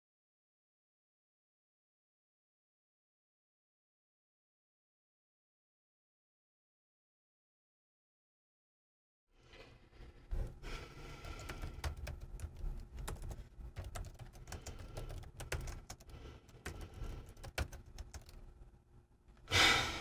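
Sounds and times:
laptop keyboard typing: 10.7s - 18.5s.

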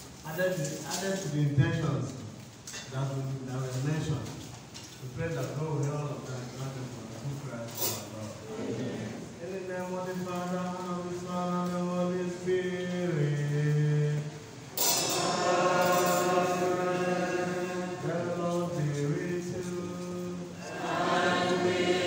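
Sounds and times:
man chanting into microphone: 9.3s - 14.5s, 15.2s - 20.7s
choir singing: 14.8s - 22.0s.

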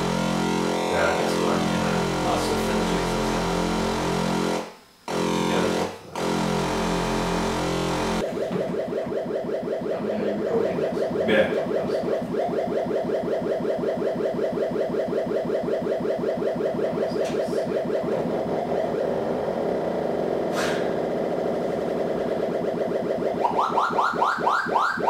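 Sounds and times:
modular synthesizer pulsed tone: 0.0s - 25.0s
burst of hiss: 20.5s - 21.0s.

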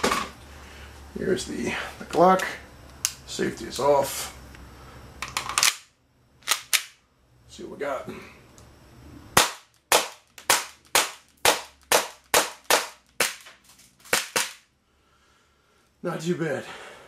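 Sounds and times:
airsoft pistol shots: 9.4s - 13.4s, 14.1s - 14.6s.

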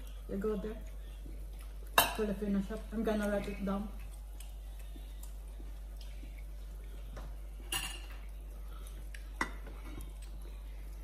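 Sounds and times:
utensil clinking on dish: 7.7s - 8.2s.

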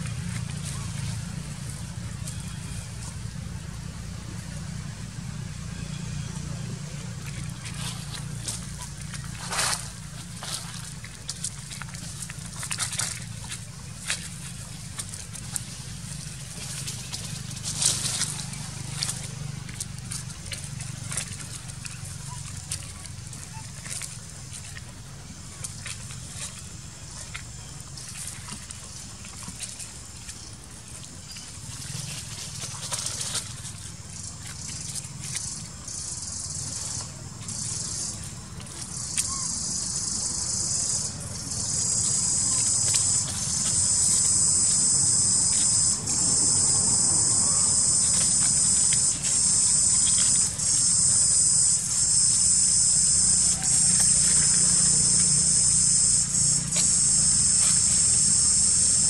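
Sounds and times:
high insect buzz: 38.9s - 59.0s.

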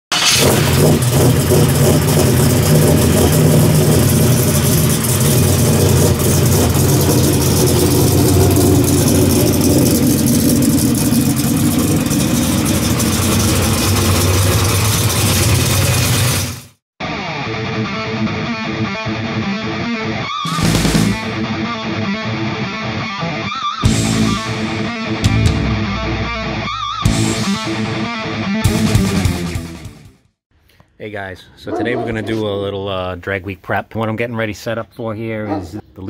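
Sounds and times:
car engine idling: 0.1s - 16.8s.

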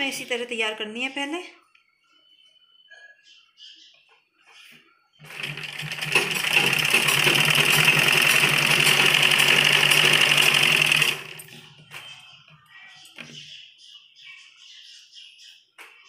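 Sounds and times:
sewing machine stitching: 5.2s - 11.8s.

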